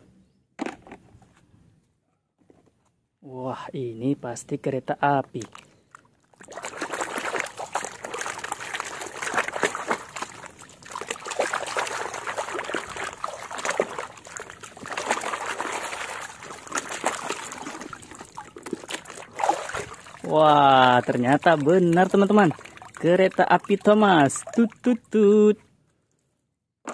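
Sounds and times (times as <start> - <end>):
water sloshing in plastic basin: 5.2 - 24.9.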